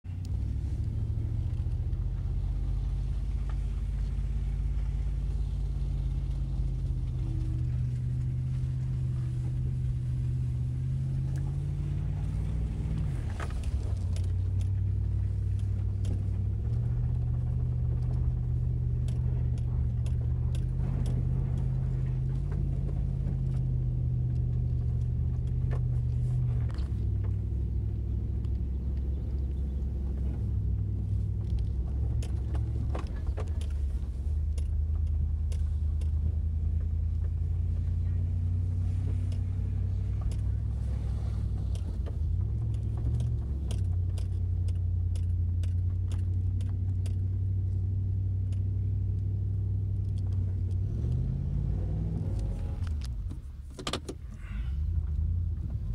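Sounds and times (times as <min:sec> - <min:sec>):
engine and road drone: 0:00.0 - 0:55.9
light clicks: 0:11.2 - 0:55.8.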